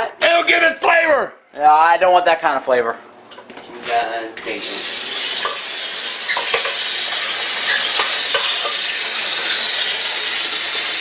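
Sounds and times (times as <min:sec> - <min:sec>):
tap running into metal pot: 0:05.4 - 0:05.7, 0:06.3 - 0:09.0
pot knocks: 0:06.4 - 0:06.8.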